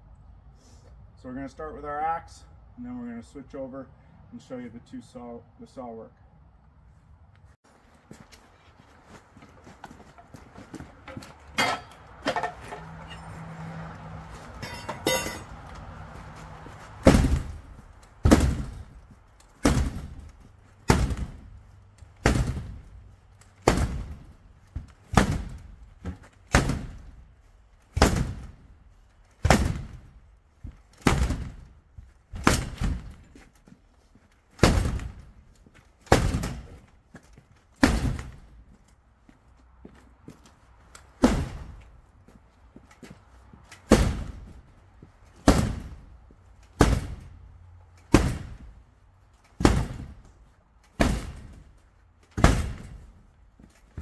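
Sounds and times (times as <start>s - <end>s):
axe striking garage door: 11.1s - 13.3s, 14.6s - 15.6s, 17.0s - 21.6s, 22.2s - 27.2s, 27.9s - 28.7s, 29.4s - 33.4s, 34.5s - 35.4s, 36.0s - 36.9s, 37.8s - 38.5s, 41.2s - 41.8s, 43.8s - 44.5s, 45.4s - 46.1s, 46.7s - 47.4s, 48.0s - 48.8s, 49.5s - 53.2s.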